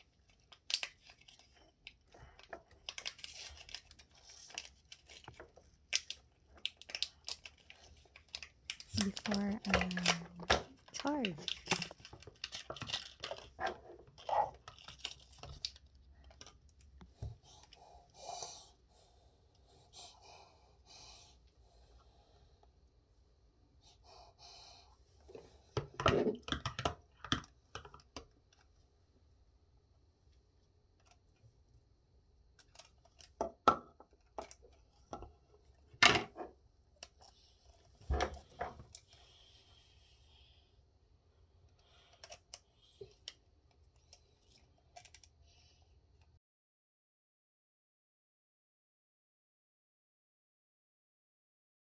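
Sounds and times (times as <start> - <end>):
plastic packaging clicks and crinkles: 0.0 - 17.1, 32.5 - 35.3, 41.8 - 43.4, 44.0 - 45.3.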